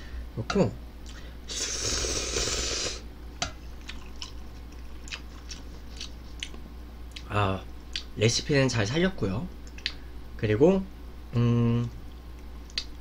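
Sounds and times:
person slurping noodles: 0:01.5 - 0:03.0
chewing with wet mouth clicks: 0:03.5 - 0:08.1, 0:09.6 - 0:10.0, 0:12.3 - 0:13.0.

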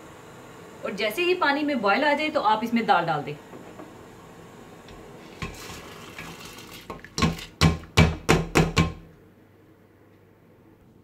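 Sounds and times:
lentils poured into water: 0:05.5 - 0:07.2
kitchenware knocking metal pot: 0:07.2 - 0:09.0.

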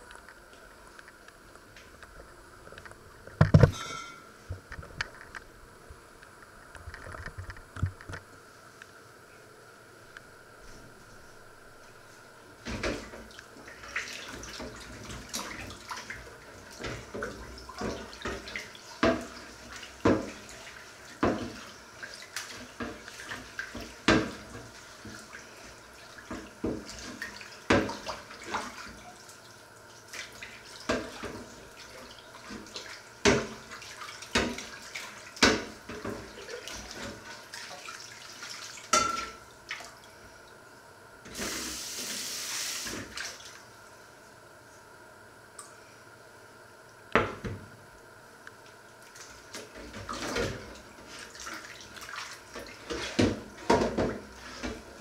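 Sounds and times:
pan clattering against sink: 0:03.6 - 0:04.2, 0:38.9 - 0:39.4, 0:52.9 - 0:54.8
water splashing in sink: 0:12.6 - 0:40.2, 0:41.3 - 0:43.7, 0:48.9 - 0:55.0.

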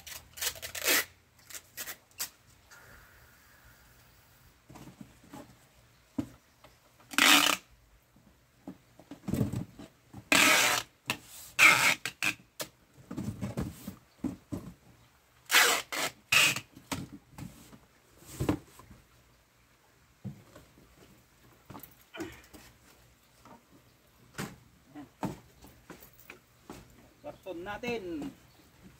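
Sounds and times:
packing tape pulled off a roll: 0:00.0 - 0:02.5, 0:07.1 - 0:07.7, 0:10.3 - 0:12.7, 0:15.5 - 0:17.0.

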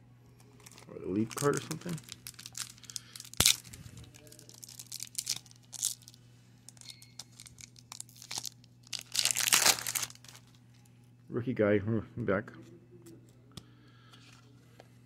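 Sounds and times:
foil wrapper tearing and crinkling: 0:00.6 - 0:06.2, 0:07.2 - 0:10.6.

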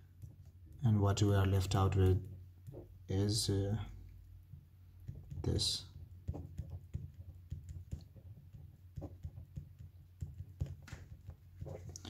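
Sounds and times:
marker pen writing on paper: 0:02.6 - 0:03.0, 0:05.0 - 0:12.0.

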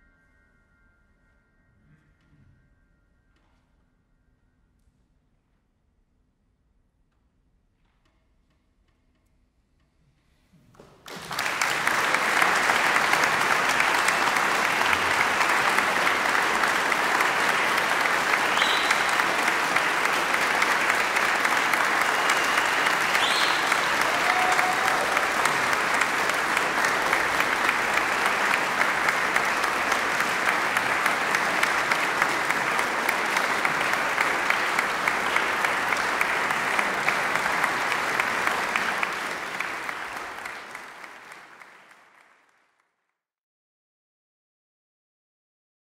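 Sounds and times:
audience applauding: 0:10.8 - 0:42.7.

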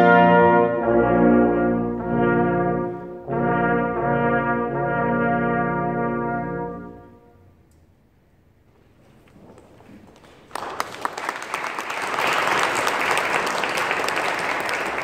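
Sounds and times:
audience applause: 0:09.7 - 0:15.0.

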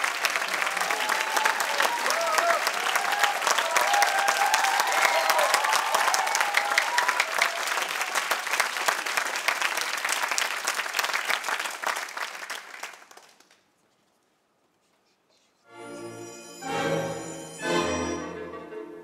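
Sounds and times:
audience applauding: 0:00.0 - 0:13.6.

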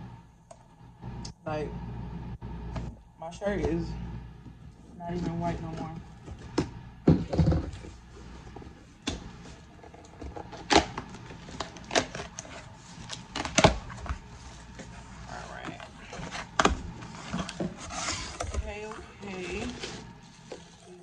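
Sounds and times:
cardboard rustling: 0:07.8 - 0:21.0.

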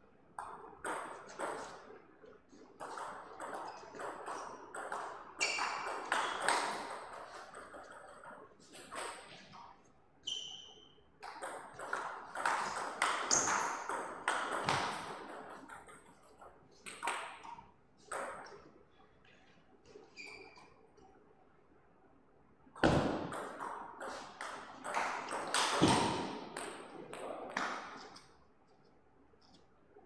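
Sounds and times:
ping pong ball clicking off bats: 0:00.4 - 0:01.8, 0:02.8 - 0:09.3, 0:11.2 - 0:18.7
short high squeaks: 0:10.2 - 0:11.0
ball bouncing on table: 0:11.2 - 0:16.1, 0:22.8 - 0:28.2.

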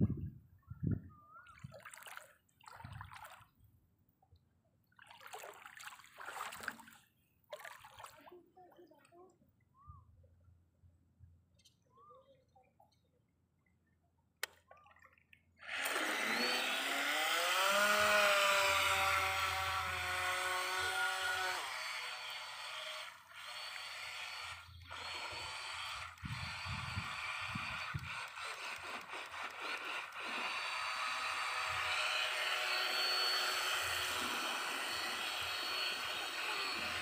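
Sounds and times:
electric boat motor whine: 0:15.6 - 0:37.0.

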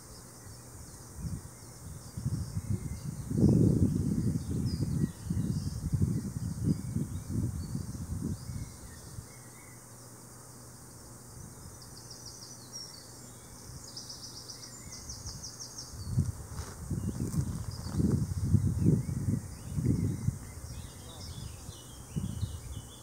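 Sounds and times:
insect chirping: 0:00.0 - 0:23.0
low rumbling wind gusts: 0:01.1 - 0:09.2, 0:15.9 - 0:22.8.

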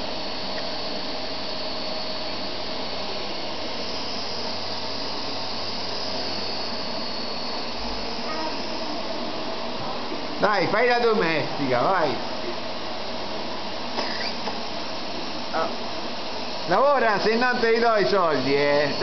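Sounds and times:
vacuum cleaner running: 0:00.0 - 0:19.0.

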